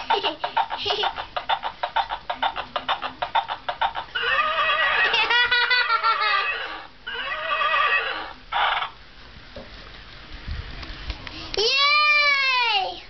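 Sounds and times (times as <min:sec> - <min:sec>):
galloping hoofbeats: 0:00.2 - 0:04.6
horse whinny: 0:04.2 - 0:05.1, 0:06.6 - 0:08.4.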